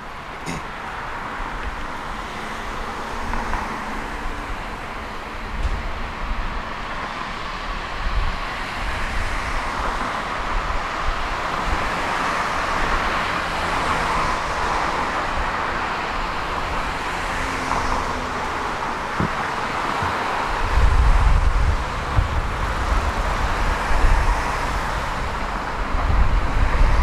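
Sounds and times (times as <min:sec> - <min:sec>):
tram wheels rolling on rails: 0:00.0 - 0:27.0.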